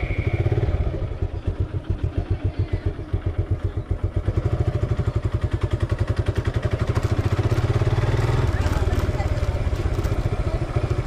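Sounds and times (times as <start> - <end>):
motorcycle engine exhaust beat: 0.0 - 11.0.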